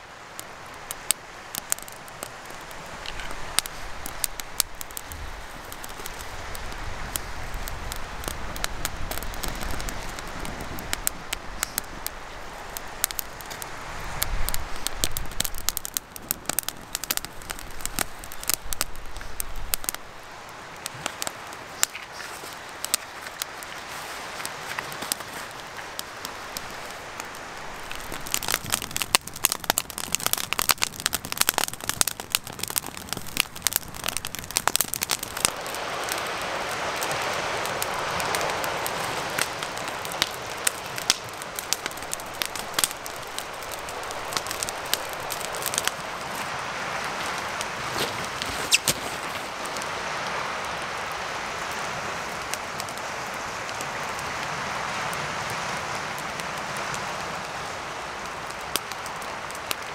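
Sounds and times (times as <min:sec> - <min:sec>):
campfire crackling and popping: 0:00.0 - 0:59.9
wind rumble on microphone: 0:02.6 - 0:20.4.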